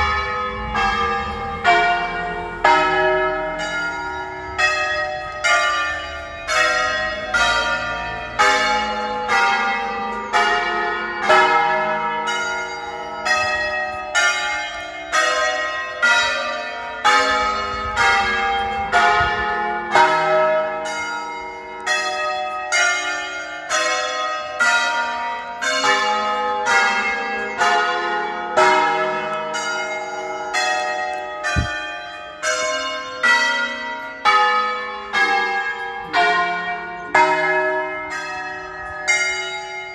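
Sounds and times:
church bells ringing: 0:00.0 - 0:39.9
brief low thud: 0:31.5 - 0:31.8.

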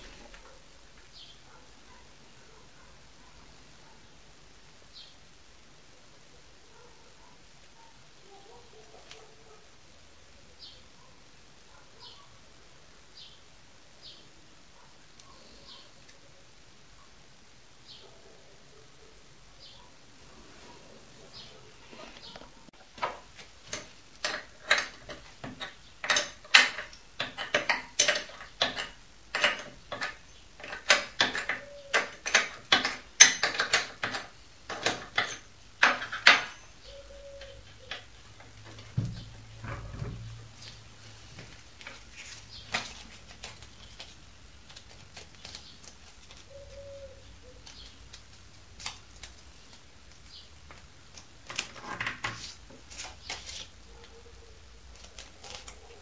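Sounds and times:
metal tools clinking on workbench: 0:23.0 - 0:36.6
dull thump: 0:38.9 - 0:40.4.

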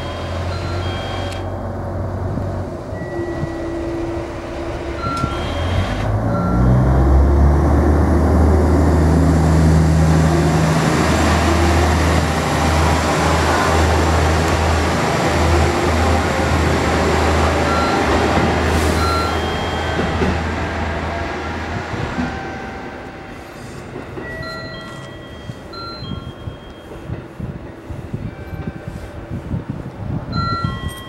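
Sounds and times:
diesel railcar engine: 0:00.0 - 0:31.0
short electronic beeps: 0:05.0 - 0:06.7, 0:19.0 - 0:20.3.

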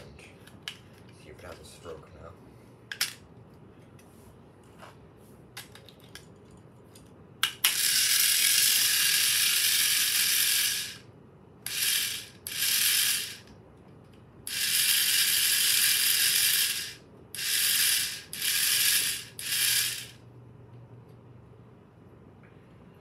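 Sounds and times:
small mechanism ratcheting: 0:07.4 - 0:11.0, 0:11.7 - 0:13.5, 0:14.5 - 0:20.2.

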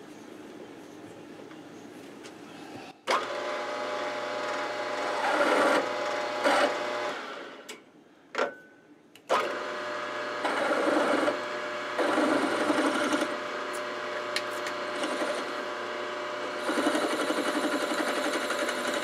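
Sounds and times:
drill motor whine: 0:03.1 - 0:07.7, 0:09.3 - 0:19.0.

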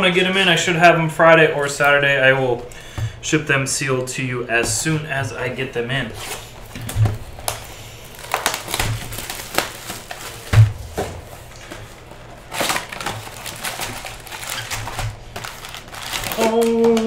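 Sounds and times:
plastic wrap crinkling: 0:06.0 - 0:17.0.

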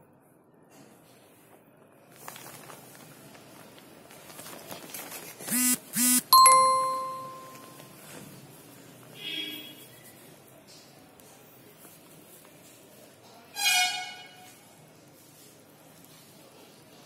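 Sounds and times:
rustling and handling: 0:02.0 - 0:05.5
short electronic buzzes: 0:05.5 - 0:06.4
bell-like ding: 0:06.4 - 0:07.8.

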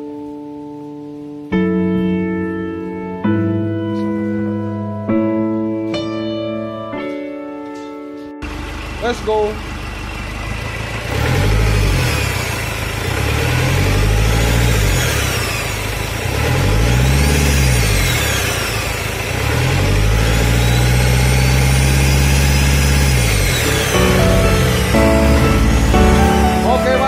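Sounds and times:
car engine revving: 0:08.4 - 0:27.0
high turbo whine: 0:08.4 - 0:27.0.

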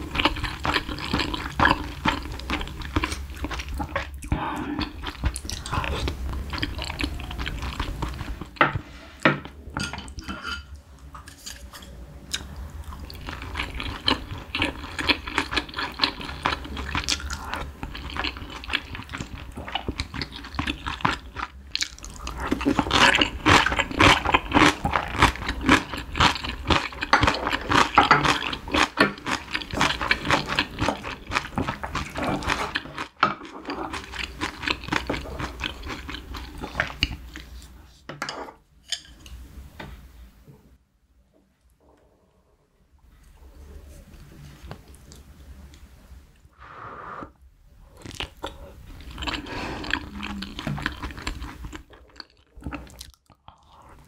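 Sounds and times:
wet chewing: 0:12.3 - 0:37.7, 0:48.0 - 0:54.0
slurping broth off a spoon: 0:46.6 - 0:47.4.

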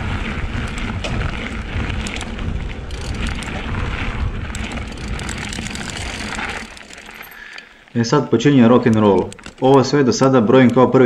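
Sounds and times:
wind rumbling on microphone: 0:00.0 - 0:07.4
bike rattles and clicks: 0:00.0 - 0:11.0
tyres crunching on gravel: 0:00.0 - 0:11.0.

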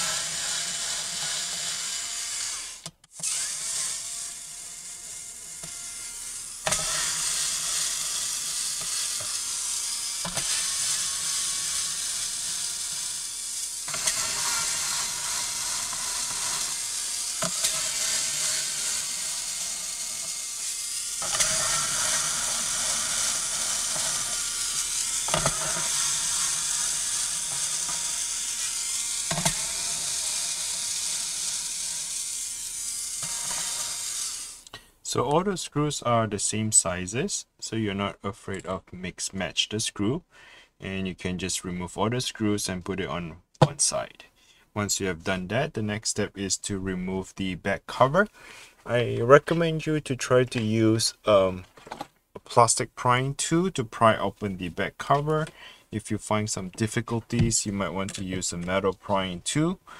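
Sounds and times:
electric screwdriver whirring: 0:00.0 - 0:34.7.

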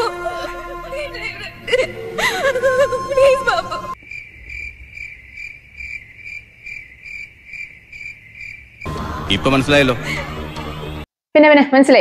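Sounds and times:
cricket chirping: 0:03.9 - 0:08.9.

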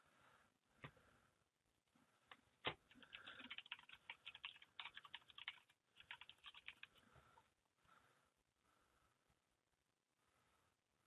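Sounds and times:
typing on a computer keyboard: 0:02.9 - 0:07.0.

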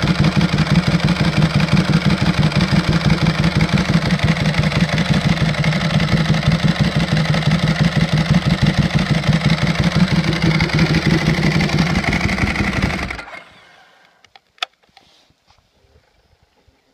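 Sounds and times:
motorcycle engine idling: 0:00.0 - 0:13.4.

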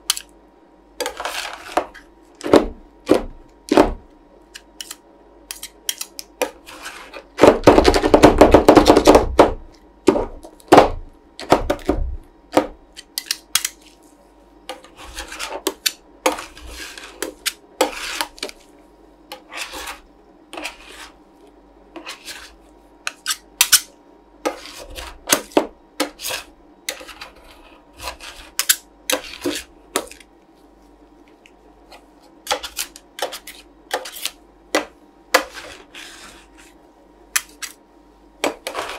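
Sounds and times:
metal spatulas chopping and scraping: 0:01.0 - 0:03.8, 0:04.6 - 0:09.2, 0:14.7 - 0:18.6, 0:19.3 - 0:21.2, 0:22.0 - 0:30.3, 0:32.4 - 0:37.8, 0:38.4 - 0:38.9.

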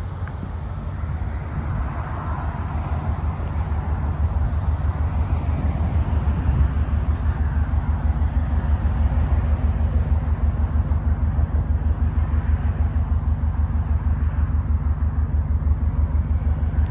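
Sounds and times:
car engine idling: 0:00.0 - 0:16.9.

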